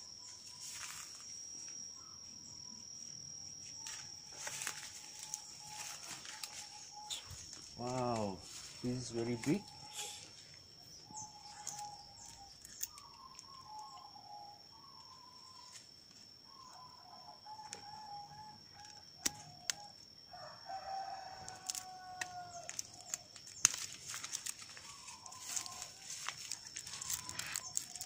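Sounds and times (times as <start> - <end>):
steady high whine: 0.0 - 20.1
roosters crowing: 20.2 - 23.4, 24.6 - 28.0
rustling: 23.0 - 28.0.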